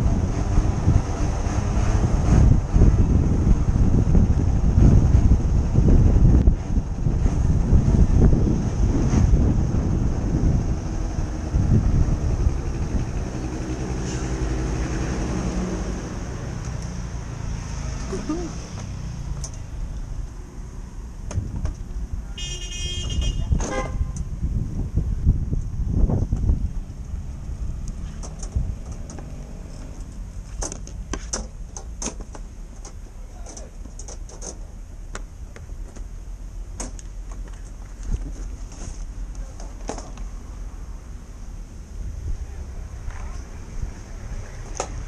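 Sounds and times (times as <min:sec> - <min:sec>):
wind on microphone: 0:00.0 - 0:16.6, 0:21.3 - 0:22.3, 0:23.0 - 0:29.9
motor scooter rumble: 0:00.0 - 0:20.7, 0:21.3 - 0:34.8.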